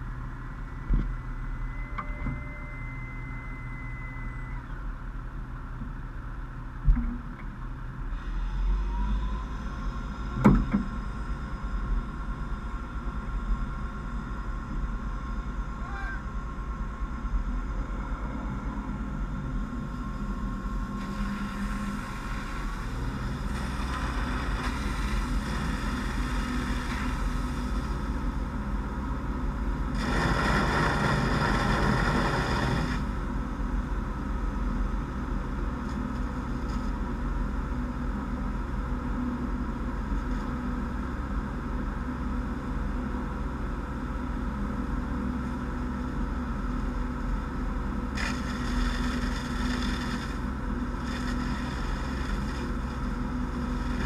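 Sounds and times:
fire engine pump running: 0:00.0 - 0:54.0.

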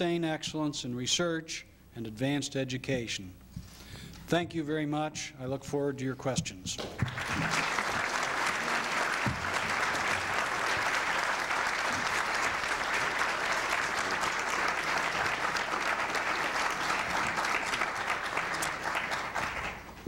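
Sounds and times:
audience applauding: 0:06.8 - 0:20.0.

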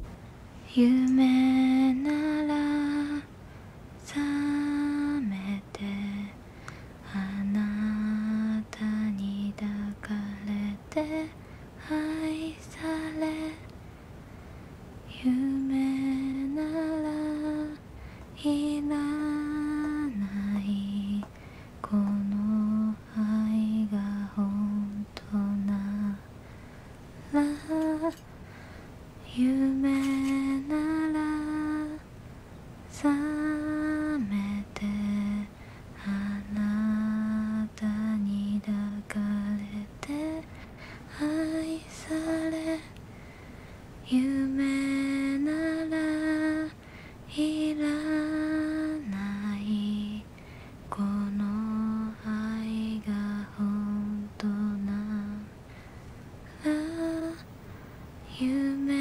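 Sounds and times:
woman humming a slow melody: 0:18.4 - 0:26.2, 0:33.0 - 0:40.4, 0:44.0 - 0:50.3, 0:50.9 - 0:55.5, 0:56.5 - 0:57.4.

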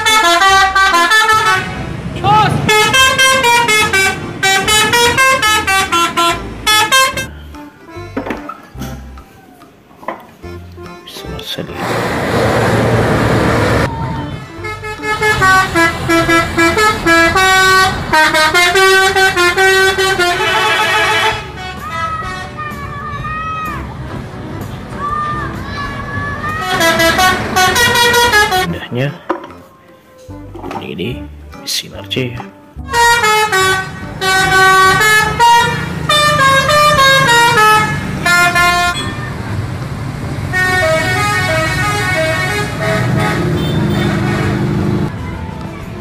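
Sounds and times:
bus musical horn playing a tune: 0:00.0 - 0:07.6, 0:13.7 - 0:22.8, 0:26.6 - 0:28.7, 0:32.8 - 0:39.6, 0:40.4 - 0:45.1.

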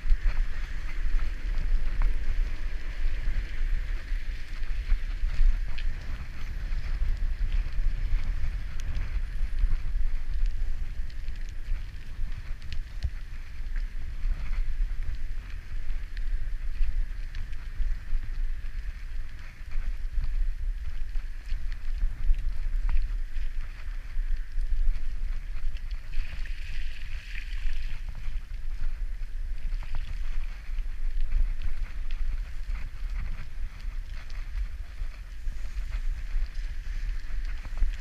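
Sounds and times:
bicycle tyres hissing on wet pavement: 0:00.0 - 0:38.0
bike rattles and clicks: 0:00.0 - 0:38.0
wind buffeting microphone: 0:00.0 - 0:38.0.

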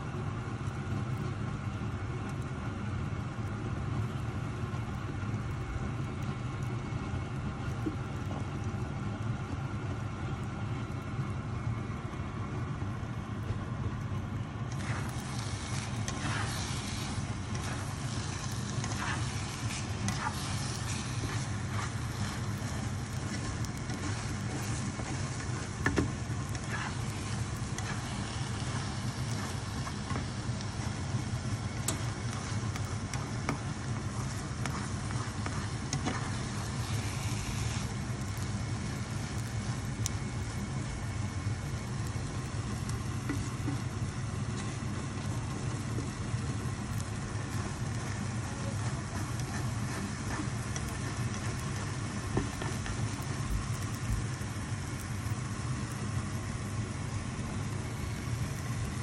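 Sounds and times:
steady low rumble: 0:03.1 - 0:59.0
food sizzling in a frying pan: 0:14.7 - 0:59.0
plastic spatula scraping a pan: 0:14.8 - 0:30.3, 0:34.2 - 0:37.8.

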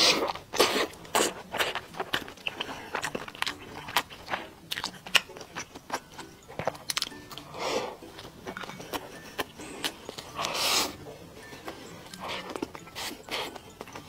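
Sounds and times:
person chewing food: 0:00.0 - 0:14.0.

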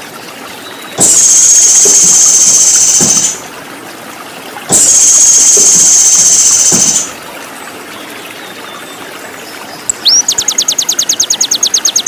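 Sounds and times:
running water: 0:00.0 - 0:12.0
high-pitched buzzing calls: 0:01.0 - 0:03.4, 0:04.7 - 0:07.1.

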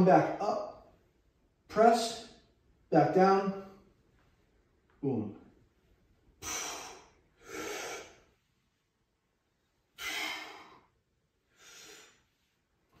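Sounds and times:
man breathing hard: 0:06.4 - 0:08.4, 0:09.9 - 0:12.4.

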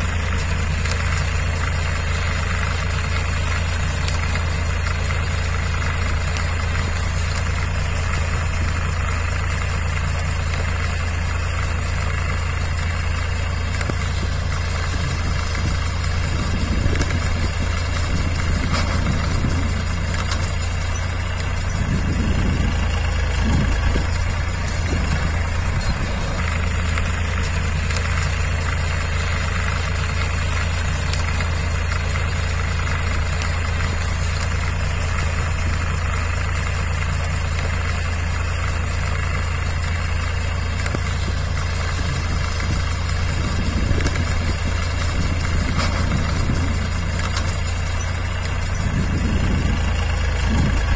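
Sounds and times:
tractor diesel engine under load: 0:00.0 - 0:50.9.

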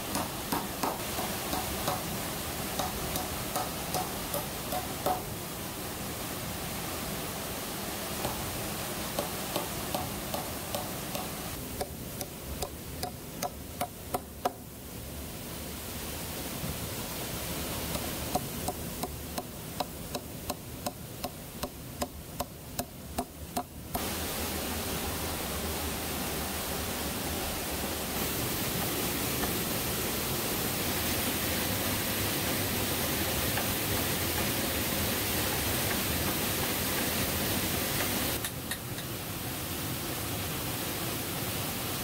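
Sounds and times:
tool knocking on wood: 0:00.1 - 0:02.1, 0:02.8 - 0:05.3.

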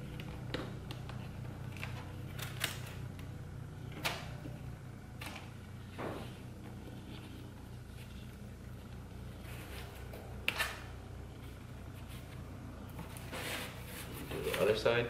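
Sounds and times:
steady low hum: 0:00.0 - 0:15.0
duct tape snapping and crackling: 0:00.2 - 0:03.3.

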